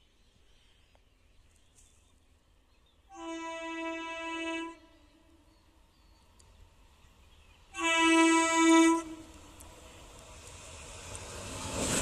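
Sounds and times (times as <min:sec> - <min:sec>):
train horn blast: 0:03.1 - 0:05.3, 0:07.7 - 0:09.4.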